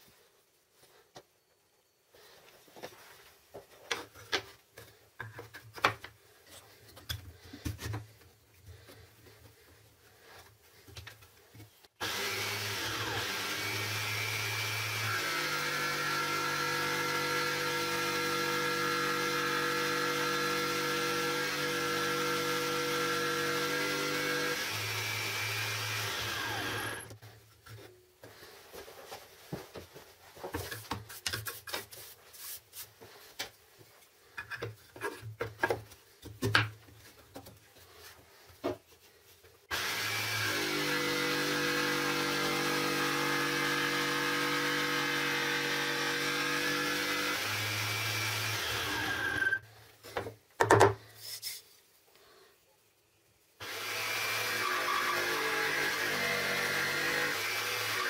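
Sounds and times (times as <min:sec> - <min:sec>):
table saw running: 0:12.0 - 0:27.2, 0:39.7 - 0:49.6, 0:53.6 - 0:58.0.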